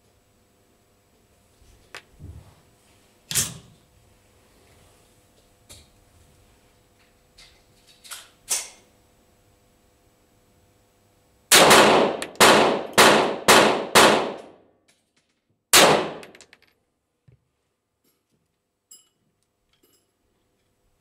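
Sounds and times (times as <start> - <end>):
pistol shots ringing: 11.5 - 14.5, 15.8 - 16.3.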